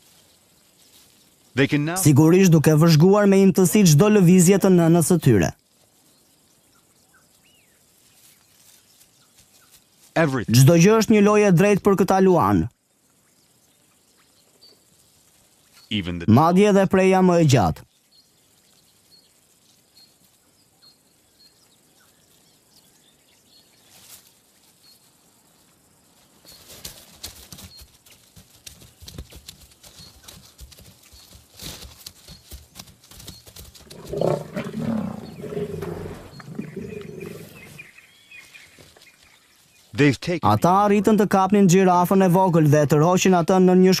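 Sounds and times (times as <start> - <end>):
brush rustling and crackling: 0.0 - 1.9, 6.9 - 10.4, 23.5 - 40.0
lions growling and snarling: 33.8 - 37.9.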